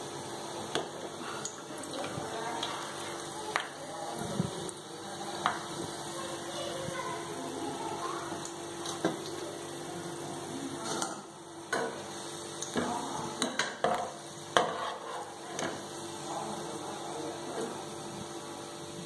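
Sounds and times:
oil sizzling: 0.0s - 19.0s
metal spatula scraping metal pan: 14.6s - 15.4s.

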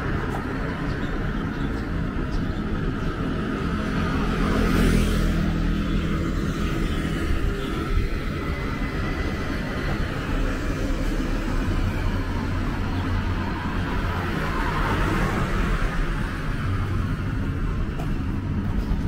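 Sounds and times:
traffic engine hum: 0.0s - 19.0s
tyre noise of passing vehicle: 0.0s - 19.0s.

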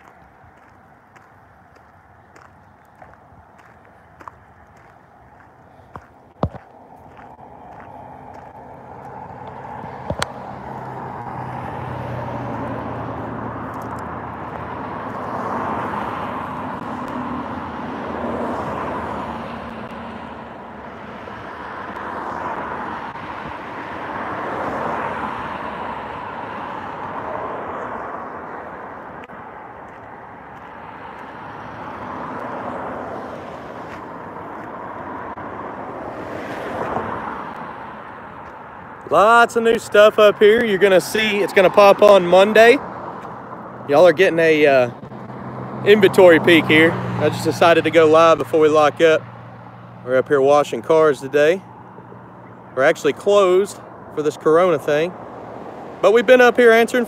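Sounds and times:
low engine hum: 0.0s - 44.1s
road traffic passing: 0.0s - 57.0s.

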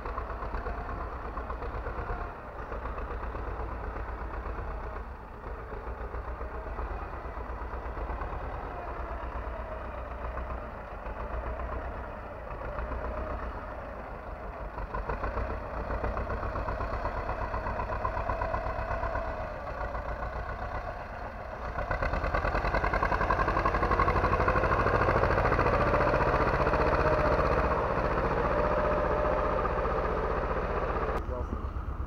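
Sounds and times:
tractor diesel engine under load: 0.0s - 32.0s.

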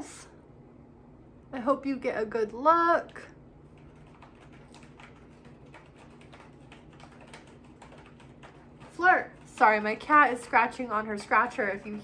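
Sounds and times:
cat scratching on scratcher: 3.8s - 10.6s.

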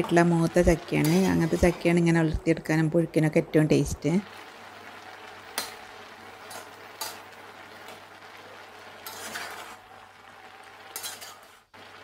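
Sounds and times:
spatula scraping pot: 0.9s - 2.0s, 9.0s - 9.9s, 10.8s - 11.7s
boiling pot hiss: 3.6s - 12.0s
metal spatula clinking on pot: 10.9s - 11.5s.

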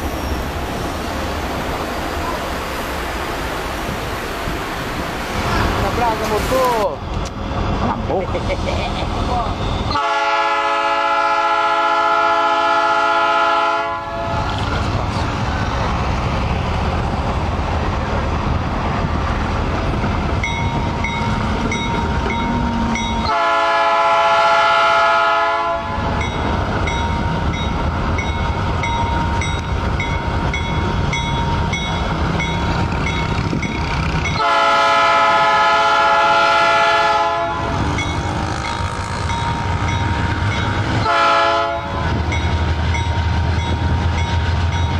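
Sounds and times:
diesel engines rumbling: 0.0s - 44.9s
locomotive air horn blasts: 9.9s - 14.5s, 23.3s - 26.2s, 34.4s - 37.8s, 41.0s - 42.0s.

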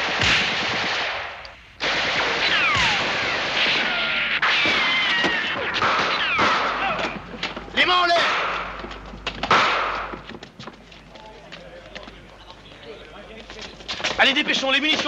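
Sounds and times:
rifle and machine-gun fire: 0.0s - 7.0s, 9.5s - 10.1s
short falling whines: 2.5s - 6.5s.

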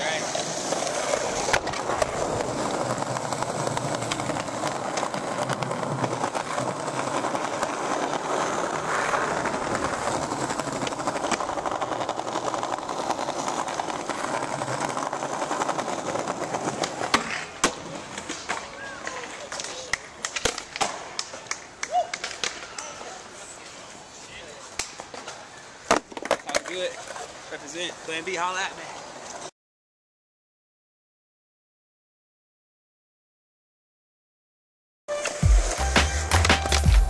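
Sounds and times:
skateboard wheels rolling on stone: 0.0s - 29.5s, 35.1s - 37.0s
skateboard clacks: 0.1s - 24.0s, 24.6s - 27.4s, 35.2s - 37.0s.

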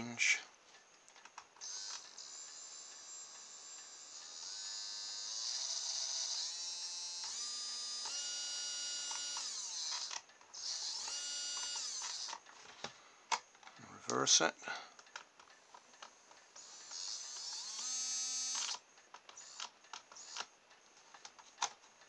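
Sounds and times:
small electric motor whining: 1.6s - 12.4s, 16.6s - 18.8s, 19.4s - 20.5s.

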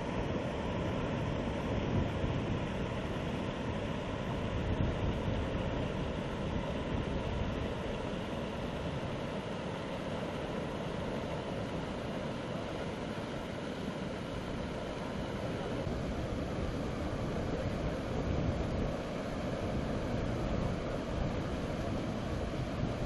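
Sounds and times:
wind on microphone: 0.1s - 9.3s, 14.5s - 23.0s.

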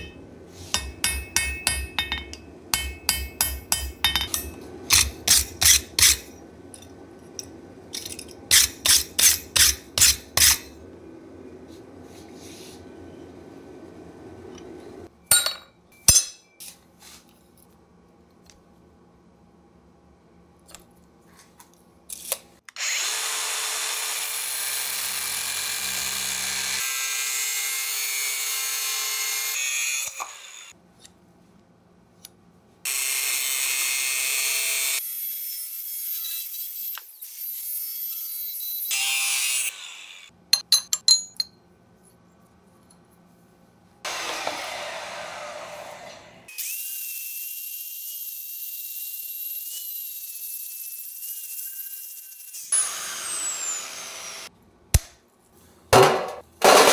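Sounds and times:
angle grinder cutting steel: 4.4s - 6.4s, 22.8s - 30.7s, 32.9s - 40.3s, 44.1s - 54.5s.

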